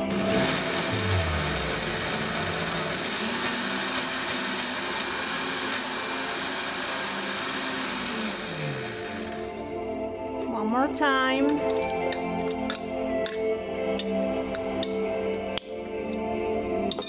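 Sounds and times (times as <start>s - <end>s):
blender running: 0.0s - 9.8s.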